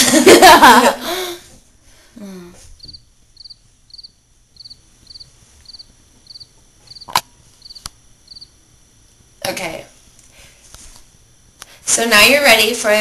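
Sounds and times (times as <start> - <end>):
cricket chirping: 2.8 - 9.4.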